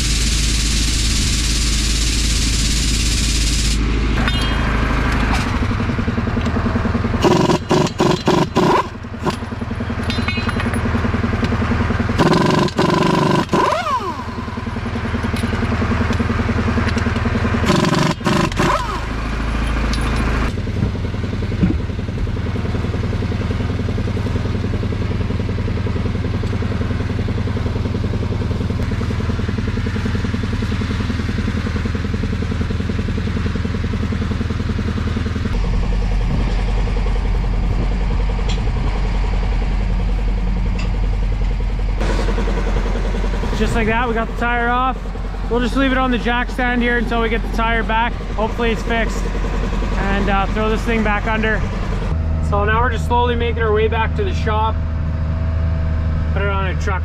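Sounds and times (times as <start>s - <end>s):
pneumatic impact wrench rattling: 0.0s - 20.6s
engine running steadily: 0.0s - 57.0s.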